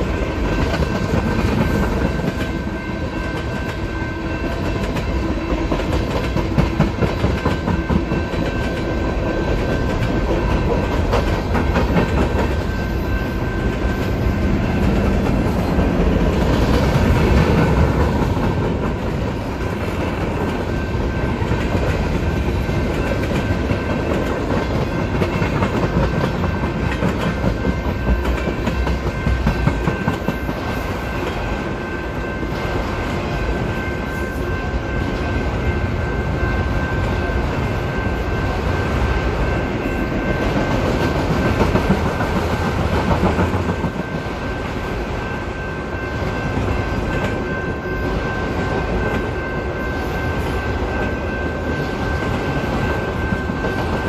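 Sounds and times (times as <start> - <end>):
train wheels clattering over rails: 4.4 - 31.5, 40.3 - 44.8.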